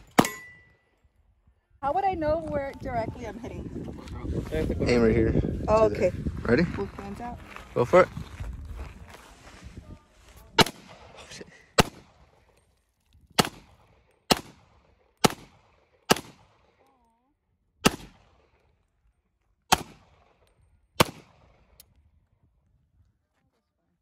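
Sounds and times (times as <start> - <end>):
pistol shots with echo: 0.0 - 0.7, 10.6 - 12.2, 13.4 - 16.8, 17.8 - 18.5, 19.7 - 20.4, 21.0 - 21.7.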